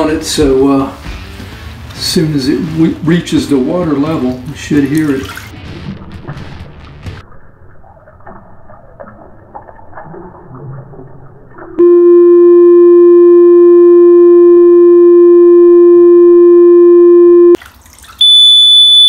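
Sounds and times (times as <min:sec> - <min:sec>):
electronic alarm tone: 0:11.8 - 0:17.6, 0:18.2 - 0:19.0
shrill alarm tone: 0:18.2 - 0:19.0.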